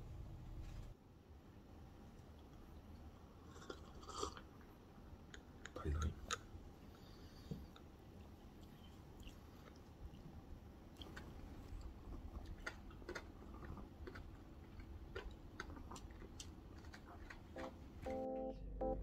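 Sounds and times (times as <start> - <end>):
chewing flaky pastry: 3.4 - 4.7, 5.4 - 17.9.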